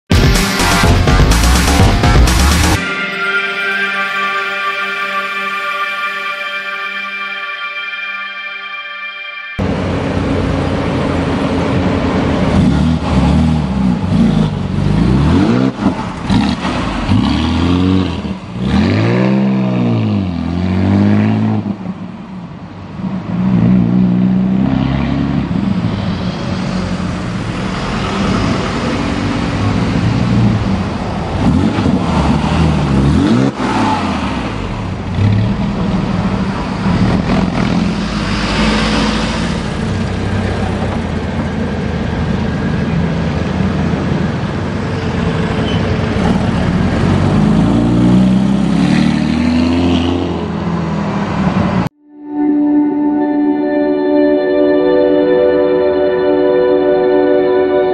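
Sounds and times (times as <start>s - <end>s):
car engine revving: 9.6s - 21.8s, 23.1s - 51.9s.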